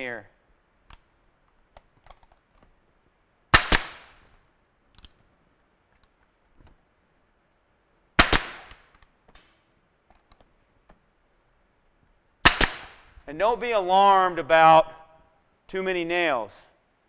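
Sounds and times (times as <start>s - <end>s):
pneumatic nail gun firing: 3.6s - 4.2s, 8.2s - 8.9s, 12.5s - 13.1s.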